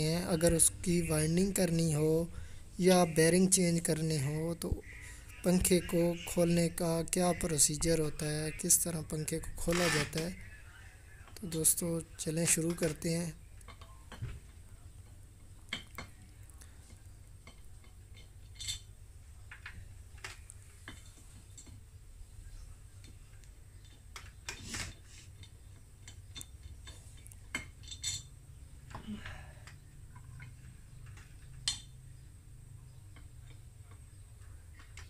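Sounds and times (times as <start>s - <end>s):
low steady hum: 0.0s - 35.0s
metal screws clicking and clinking: 17.4s - 18.9s, 23.8s - 28.4s.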